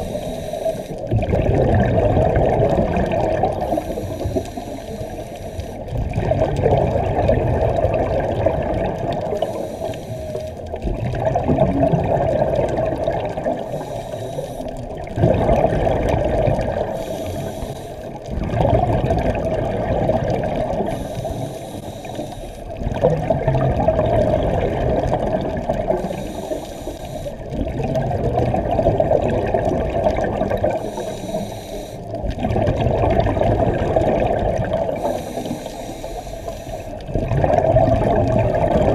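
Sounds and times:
regulator inhale hiss: 0.0 - 1.1, 3.5 - 5.9, 9.3 - 10.7, 13.5 - 14.8, 16.8 - 18.3, 20.8 - 22.8, 25.9 - 27.6, 30.7 - 32.2, 34.9 - 37.1
exhaled bubbles rushing: 0.0 - 21.5, 22.6 - 31.4, 32.0 - 38.9.

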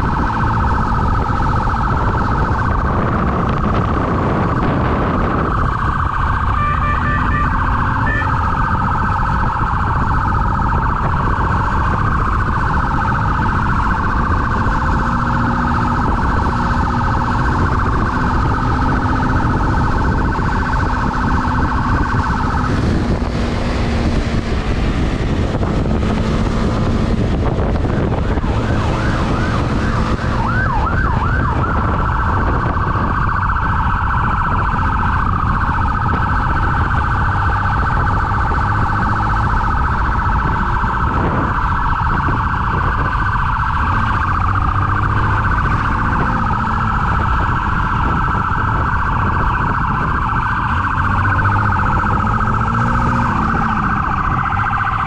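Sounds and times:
motorcycle engine: 0.0 - 42.7
police siren: 0.0 - 55.0
wind noise: 0.0 - 55.0.

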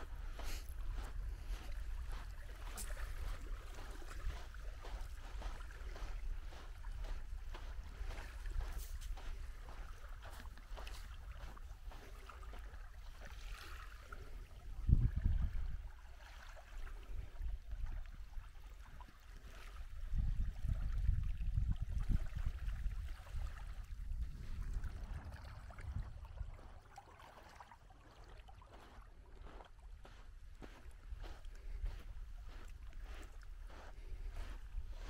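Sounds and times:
wind buffeting microphone: 0.0 - 12.0, 14.6 - 15.9, 19.9 - 26.8, 30.6 - 35.0
small waves lapping: 0.0 - 35.0.

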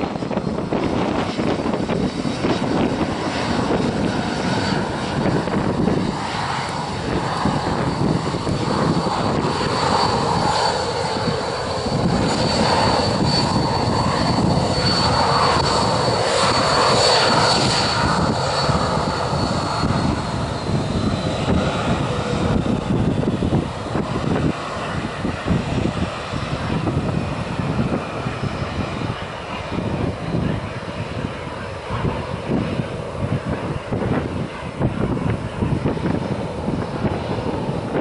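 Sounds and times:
continuous rumble: 0.0 - 38.0
jet engine high whine: 0.0 - 38.0.

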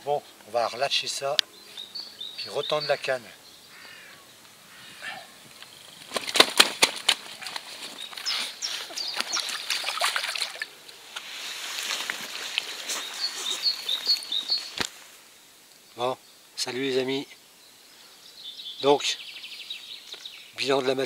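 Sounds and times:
fish splashing in water: 8.9 - 10.8
churning water: 9.0 - 10.8.

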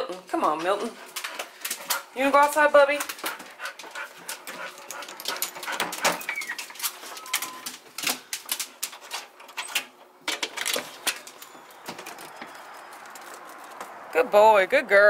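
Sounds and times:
dog claws clicking on floor: 0.0 - 14.0
high squeaks: 6.2 - 7.7.

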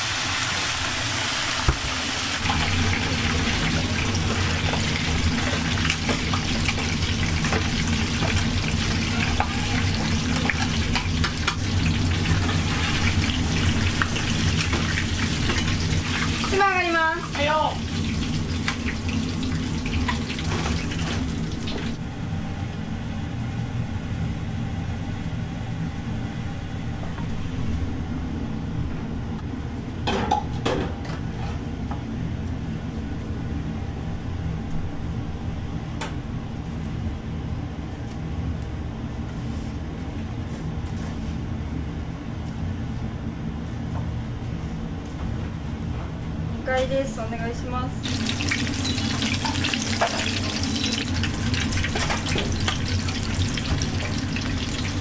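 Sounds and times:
chicken sizzling in hot oil: 0.0 - 21.9, 48.0 - 55.0
low kitchen rumble: 0.0 - 55.0.

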